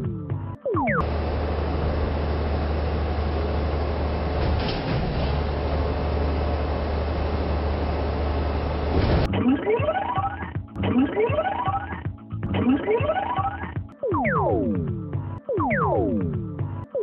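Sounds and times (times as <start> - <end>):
garbage truck engine rumbling: 1.0 - 9.3.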